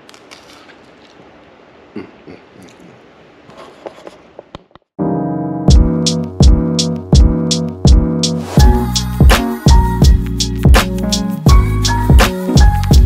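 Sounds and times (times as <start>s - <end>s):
loud music with a beat: 5.7s - 13.0s.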